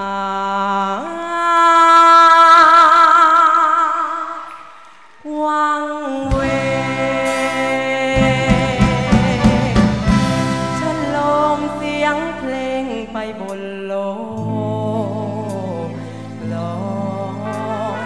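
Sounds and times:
man singing: 0:05.3 - 0:18.0
live band playing: 0:06.3 - 0:12.8, 0:15.4 - 0:18.0.

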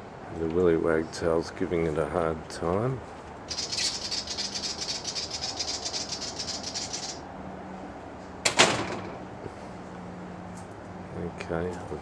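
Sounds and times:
bird ticking scolding chatter: 0:03.5 - 0:07.2.

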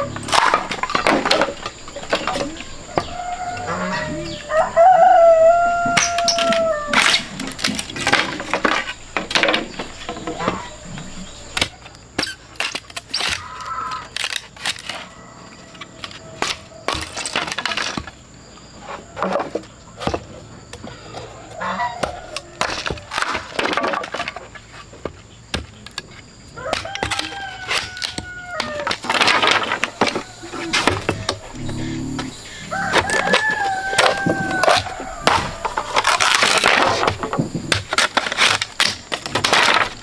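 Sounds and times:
rooster crowing: 0:02.8 - 0:07.0, 0:26.6 - 0:28.9, 0:29.8 - 0:36.0
machete splitting bamboo: 0:11.6 - 0:15.1, 0:33.0 - 0:40.0.

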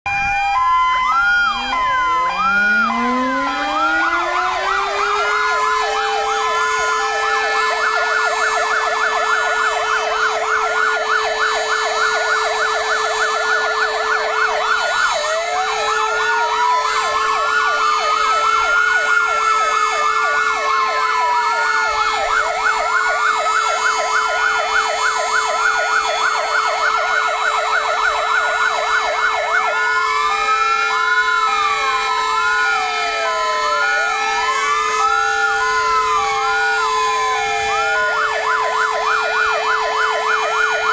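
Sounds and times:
siren winding up to held note: 0:00.1 - 0:06.5
fire engine sirens wailing: 0:00.1 - 0:40.9.

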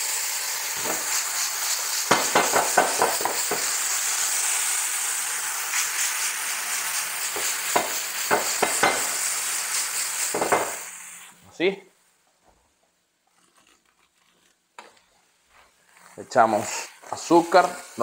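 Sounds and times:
onions sizzling in a skillet: 0:00.0 - 0:11.4, 0:15.8 - 0:18.0.

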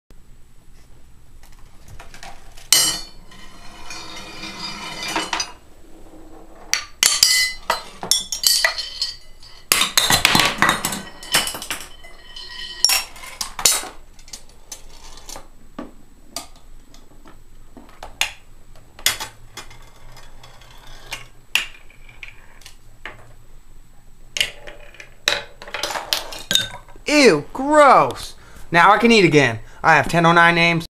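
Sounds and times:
knocks and clacks of pieces: 0:06.7 - 0:23.3.

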